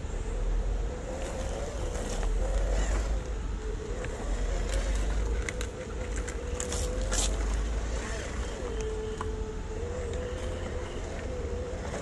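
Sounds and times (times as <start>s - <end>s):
electric motor and gearbox whining: 0.0s - 12.0s.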